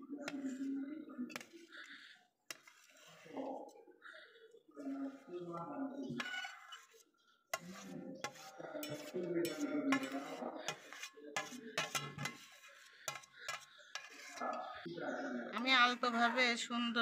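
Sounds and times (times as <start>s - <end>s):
metal spoon scraping a pot: 0.2s - 3.8s, 5.0s - 14.9s.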